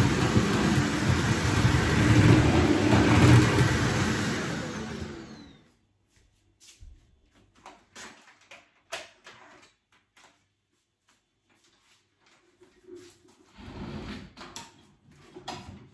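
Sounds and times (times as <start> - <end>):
vacuum cleaner motor whine: 0.0 - 5.7.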